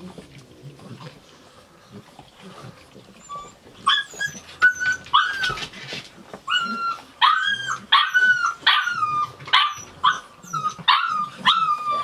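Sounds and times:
puppy whimpering: 3.0 - 12.0.

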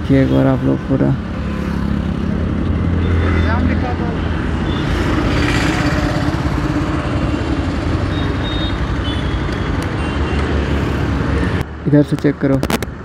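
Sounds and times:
diesel engine rumbling: 2.1 - 11.6.

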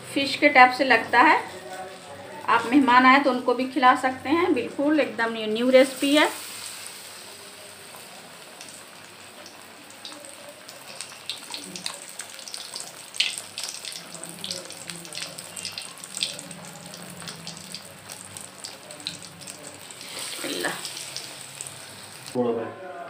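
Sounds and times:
eggplant slices frying in oil: 0.2 - 22.4
oil popping and crackling: 5.8 - 22.4.

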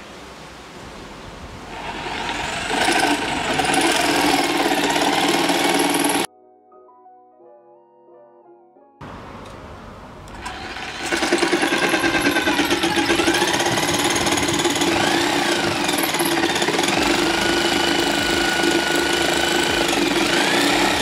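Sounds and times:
jigsaw cutting wood: 1.7 - 6.3, 10.3 - 21.0.

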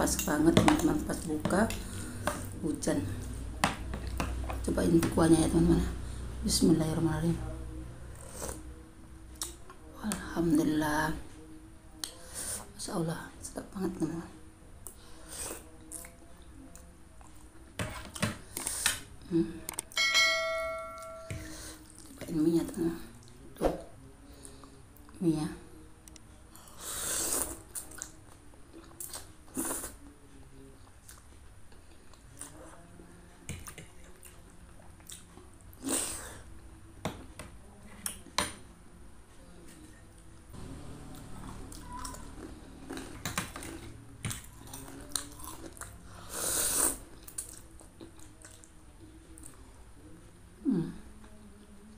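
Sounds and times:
bell-like chime: 20.0 - 21.6
person chewing noodles: 41.1 - 48.7.

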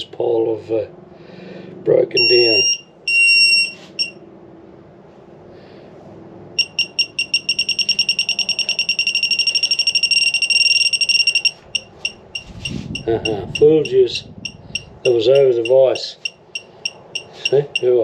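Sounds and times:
metal detector beeping: 2.2 - 4.2, 6.6 - 18.0.

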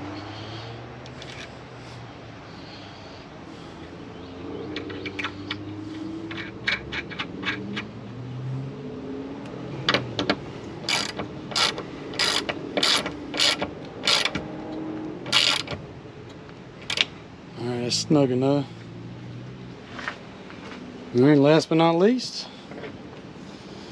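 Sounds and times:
ratchet wrench clicking: 4.7 - 5.6, 6.3 - 7.9, 9.9 - 14.5, 15.3 - 15.8.

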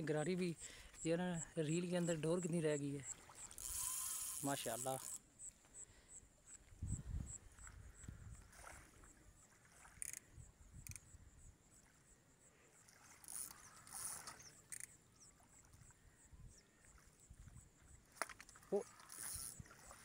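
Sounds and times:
faint clicks: 10.8 - 11.1, 13.2 - 15.0.

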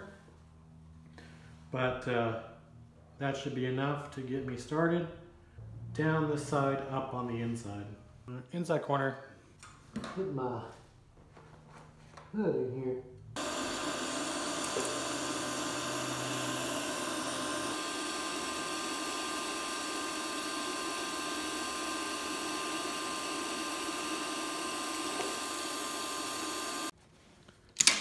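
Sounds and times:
welding arc hissing: 13.4 - 27.0.

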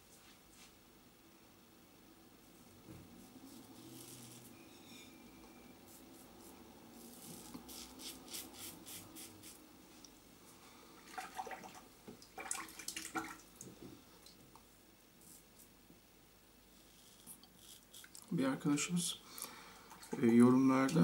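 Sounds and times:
razor scraping through stubble: 3.5 - 5.0, 5.9 - 9.6, 16.8 - 18.2
water splashing and knocking: 11.1 - 13.8.

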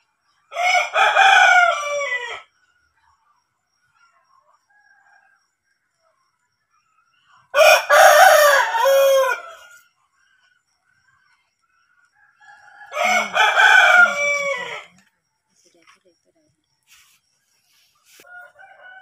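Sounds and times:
rooster crowing: 0.5 - 2.5, 7.5 - 9.8, 12.1 - 15.0, 18.1 - 19.0.

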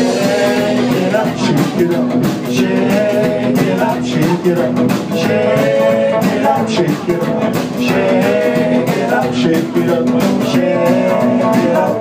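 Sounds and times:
man singing: 0.0 - 12.0
rock and roll band playing: 0.0 - 12.0.

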